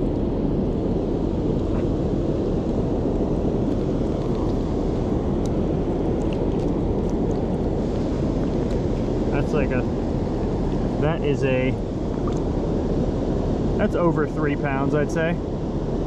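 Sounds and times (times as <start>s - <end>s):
water pouring over dam spillway: 3.7s - 12.4s.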